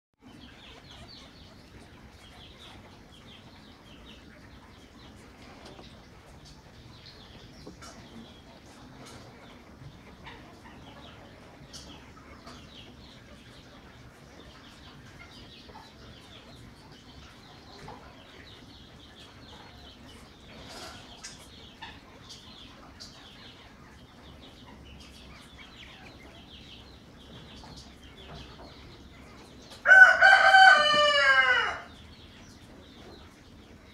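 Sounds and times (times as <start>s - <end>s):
rooster crowing: 29.8s - 31.9s.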